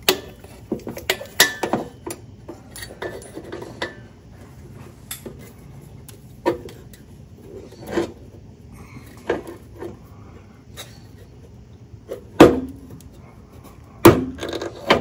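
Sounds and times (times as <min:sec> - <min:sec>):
metal tool clinking on exhaust pipe: 0:00.0 - 0:04.1, 0:05.0 - 0:05.5.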